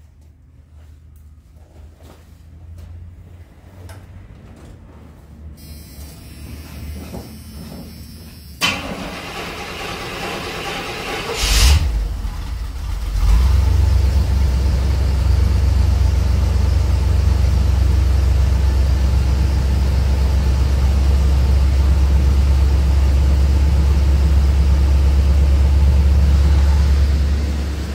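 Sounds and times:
truck engine starting and idling: 8.0s - 27.9s.

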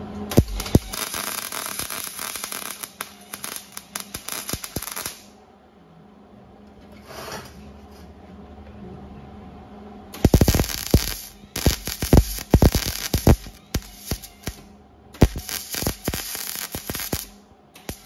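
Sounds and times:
welder arc crackling and popping: 0.3s - 5.3s, 10.2s - 18.0s.

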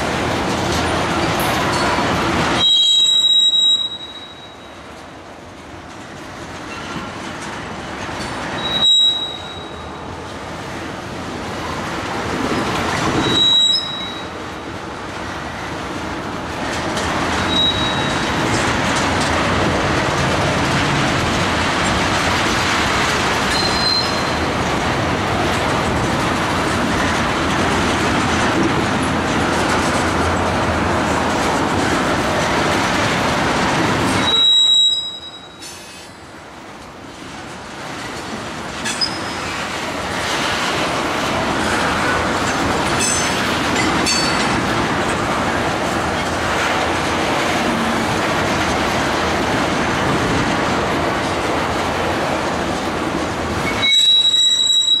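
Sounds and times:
train wheels rolling on rail: 0.0s - 55.0s
high-pitched wheel squeals: 2.6s - 4.7s, 8.6s - 9.9s, 13.2s - 14.3s, 17.5s - 18.3s, 23.5s - 24.4s, 34.2s - 36.0s, 53.6s - 55.0s.

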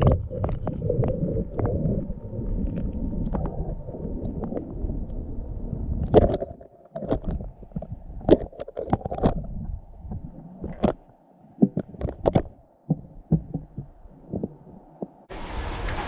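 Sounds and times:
low gurgling rumble: 0.0s - 16.0s
muffled underwater knocks: 10.1s - 15.3s.

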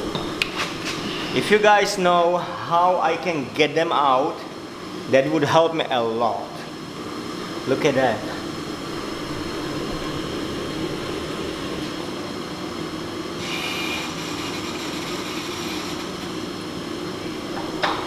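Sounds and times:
harsh high-pitched noise: 13.4s - 16.2s.

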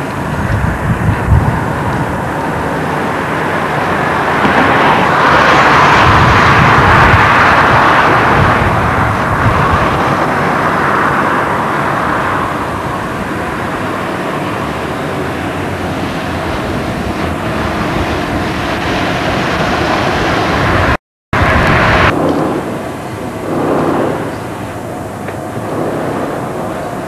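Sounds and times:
road traffic roar: 0.0s - 27.0s.

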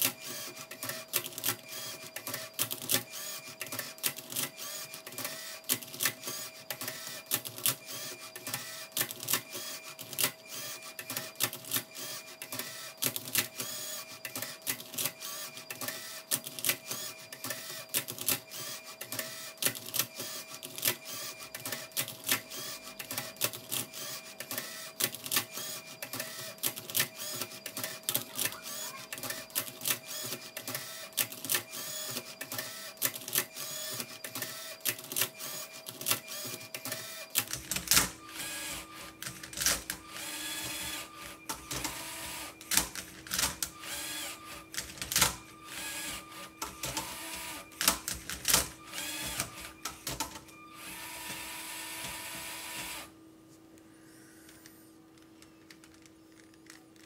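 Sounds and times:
robot motors whirring: 37.8s - 42.9s, 43.5s - 44.6s, 48.5s - 49.7s.

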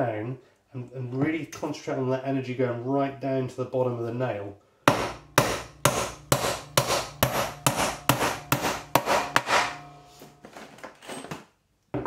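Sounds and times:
hammer blows on nail: 4.8s - 10.2s.

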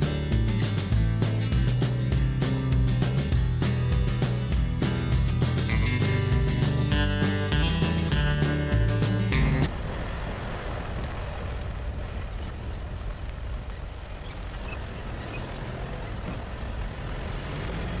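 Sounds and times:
guitar music: 0.0s - 9.7s
truck tyres and engine rumble: 0.0s - 18.0s.

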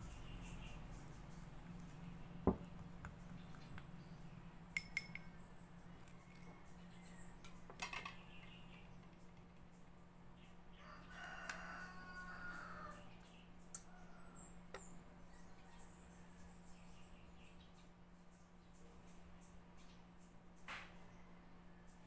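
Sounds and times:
stick clinking on glass cup: 4.8s - 5.3s
rooster crowing: 10.7s - 13.1s.

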